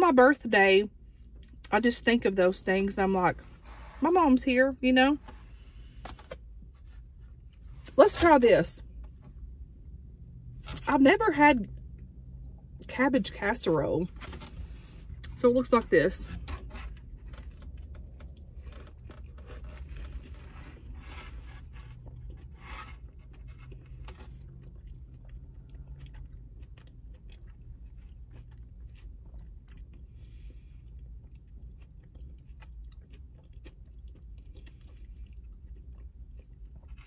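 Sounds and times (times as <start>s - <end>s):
steady low hum: 0.0s - 37.0s
chewing with wet mouth smacks: 23.2s - 37.0s.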